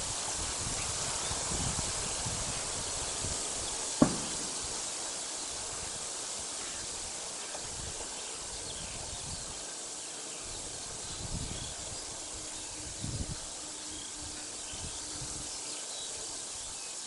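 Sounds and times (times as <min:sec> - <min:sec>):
wind rumbling on microphone: 0:00.0 - 0:09.7, 0:10.4 - 0:16.8
steady high hiss: 0:00.0 - 0:17.0
sharp knock: 0:04.0 - 0:05.0.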